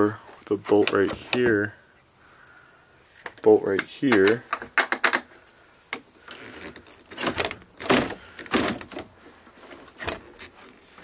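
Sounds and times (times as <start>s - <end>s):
door bolt scraping and creaking: 6.2s - 9.0s, 9.9s - 10.6s.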